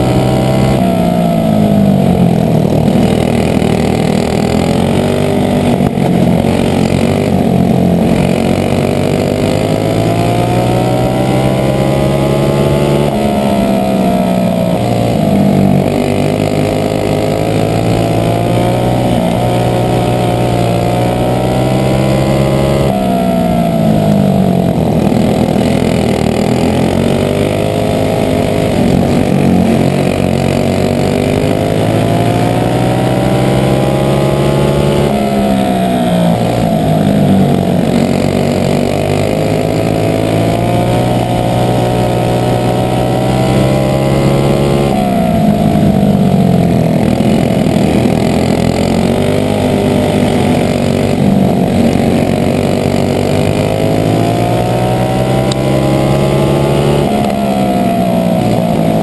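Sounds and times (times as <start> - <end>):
kart engine revving: 0.0 - 59.0.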